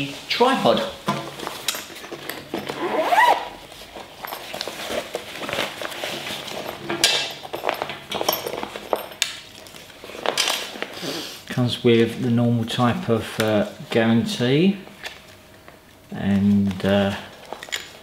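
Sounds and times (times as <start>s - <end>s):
bag fabric rustling: 2.5s - 6.8s
bag being unzipped: 2.6s - 3.6s.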